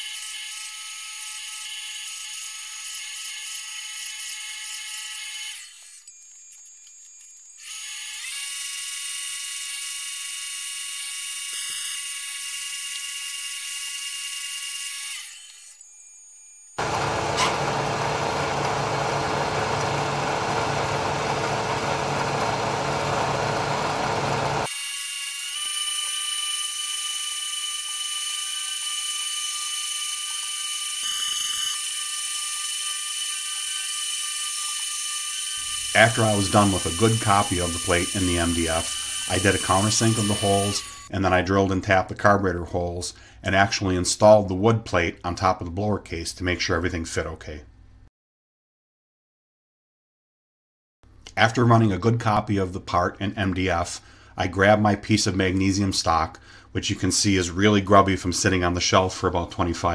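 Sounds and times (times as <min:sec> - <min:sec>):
milling machine high whine: 0:15.4 - 0:24.7, 0:35.6 - 0:41.1.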